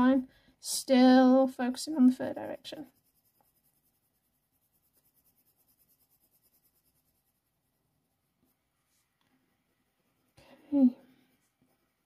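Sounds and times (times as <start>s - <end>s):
pencil scratching on paper: 1.9s - 7.8s.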